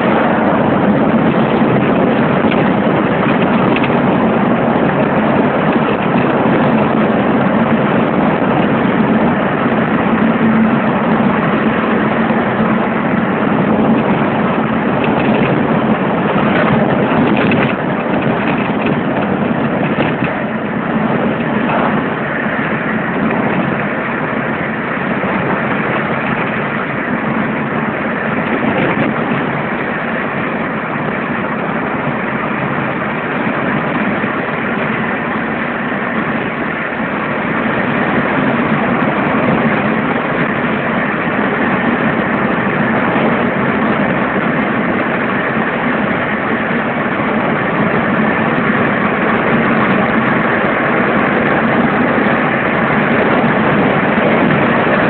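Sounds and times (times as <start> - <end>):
car engine and tyre noise: 0.0 - 55.0.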